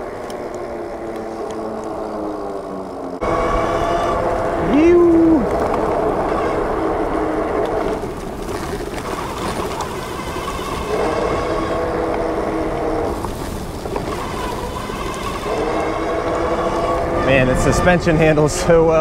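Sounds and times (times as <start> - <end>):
electric motor whine: 0.0 - 8.1, 13.9 - 18.1
tyres on asphalt: 0.0 - 19.0.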